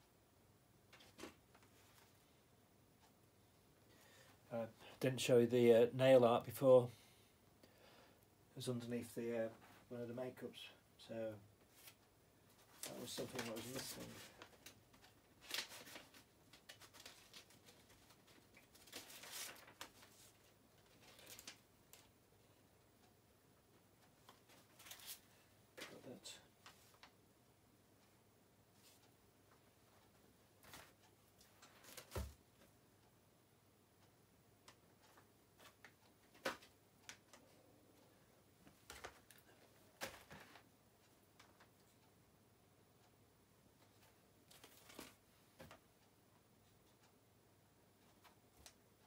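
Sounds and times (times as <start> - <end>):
paper and packaging rustling: 11.7 - 22.1, 24.3 - 27.1, 44.5 - 45.7.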